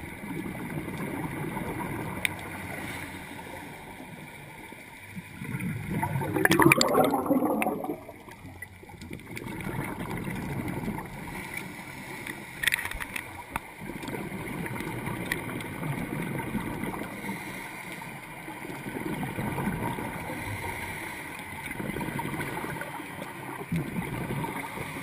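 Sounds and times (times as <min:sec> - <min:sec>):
underwater rumble and gurgling: 0:00.0 - 0:25.0
diver exhaust bubbles: 0:05.4 - 0:08.6.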